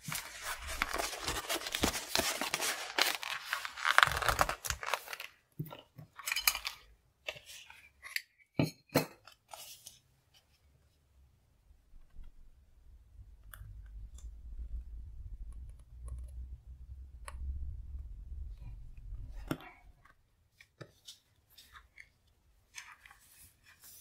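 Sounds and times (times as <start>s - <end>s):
paper notebook handling rustles: 0.0s - 8.2s, 9.3s - 10.6s, 20.4s - 24.0s.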